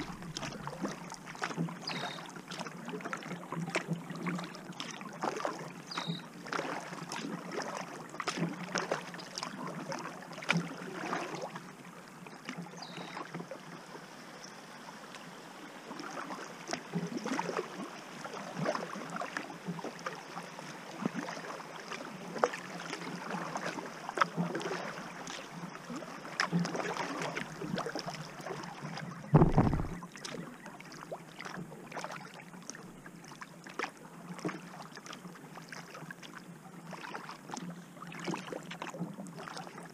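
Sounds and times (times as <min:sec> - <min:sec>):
water dripping: 0:00.0 - 0:01.0
paddle splashing in water: 0:00.0 - 0:13.6, 0:15.9 - 0:39.9
thump: 0:29.3 - 0:30.0.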